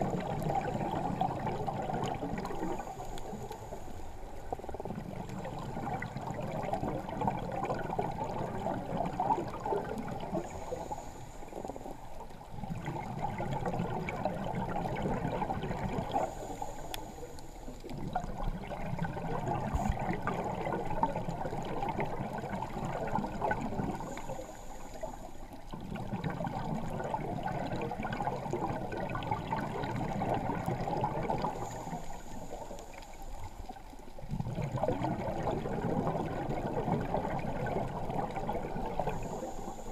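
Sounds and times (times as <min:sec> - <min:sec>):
bubbly gurgling exhalations: 0:00.0 - 0:03.4, 0:04.5 - 0:16.7, 0:17.8 - 0:24.6, 0:25.6 - 0:32.6, 0:33.7 - 0:39.9
diver breathing through regulator: 0:10.3 - 0:12.0, 0:16.0 - 0:17.8, 0:23.8 - 0:25.4, 0:31.4 - 0:33.6, 0:39.0 - 0:39.9.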